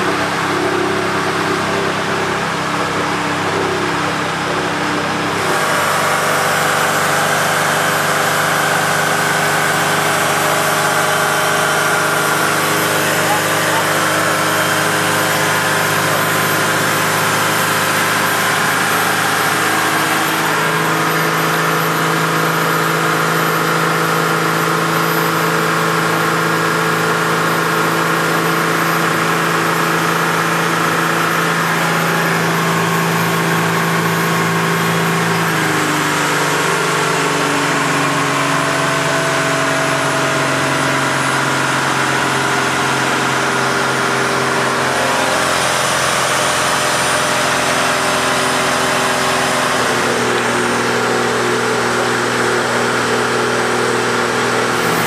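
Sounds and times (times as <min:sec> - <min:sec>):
boat diesel engine running: 0:00.0 - 0:55.0.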